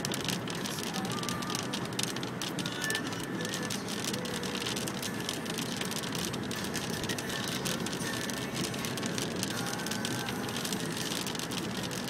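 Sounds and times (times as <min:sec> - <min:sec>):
rain on car roof: 0:00.0 - 0:12.0
road and tyre noise: 0:00.0 - 0:12.0.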